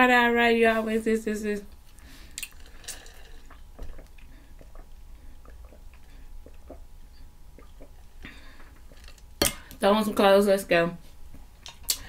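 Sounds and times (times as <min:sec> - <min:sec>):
mouth and swallowing clicks: 0:02.4 - 0:09.0.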